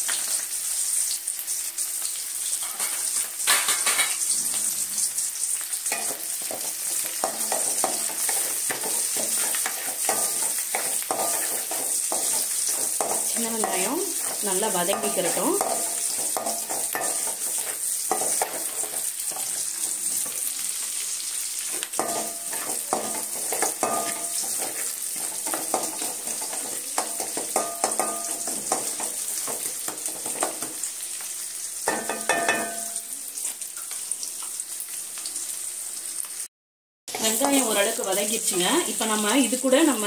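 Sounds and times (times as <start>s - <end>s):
onions sizzling in oil: 0.0s - 36.5s, 37.1s - 40.0s
wooden spatula scraping pan: 6.0s - 20.5s, 21.7s - 30.8s.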